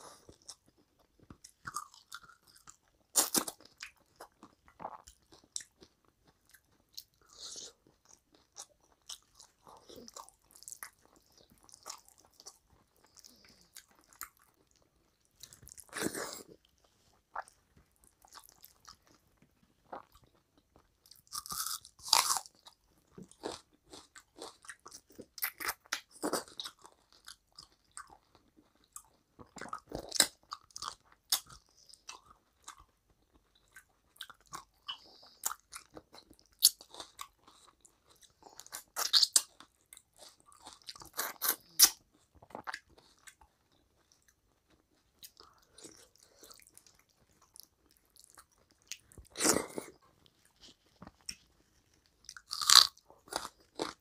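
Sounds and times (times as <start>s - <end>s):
person chewing with wet mouth sounds: 0.0s - 54.0s.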